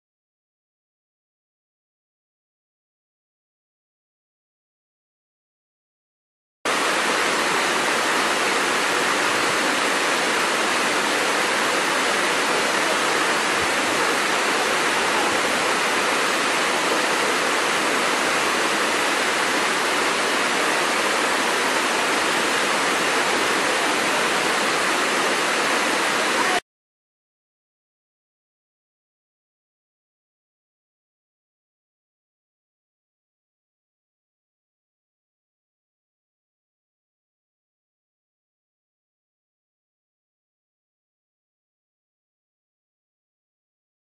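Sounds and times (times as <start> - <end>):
waterfall rushing: 6.7 - 26.6.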